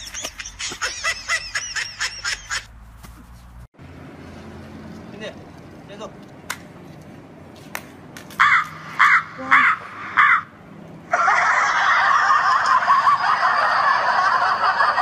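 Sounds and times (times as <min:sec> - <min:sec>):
laughter: 0:00.0 - 0:02.7, 0:11.1 - 0:15.0
crow cawing: 0:08.4 - 0:10.5.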